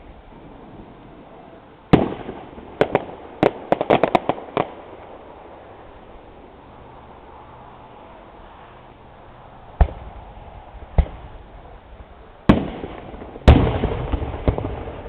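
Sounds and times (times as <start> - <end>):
fireworks bangs: 0.0 - 5.7, 9.8 - 15.0
firework crackling pops: 1.9 - 5.4, 9.8 - 15.0.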